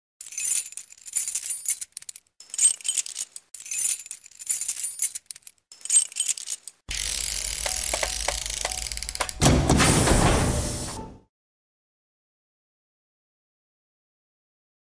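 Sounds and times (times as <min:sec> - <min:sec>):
high glittering jingling: 0:00.2 - 0:06.8.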